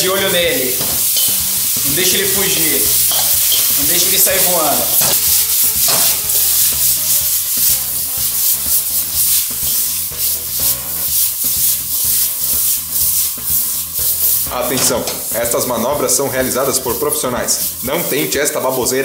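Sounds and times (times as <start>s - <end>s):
peppers sizzling in a wok: 0.0s - 19.0s
wok scraping and rattling: 0.0s - 19.0s.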